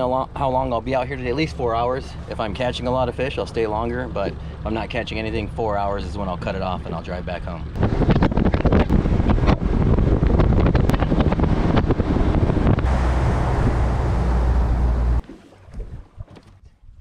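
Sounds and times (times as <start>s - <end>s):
low rumble: 0.0s - 16.1s
wind buffeting microphone: 0.0s - 17.0s.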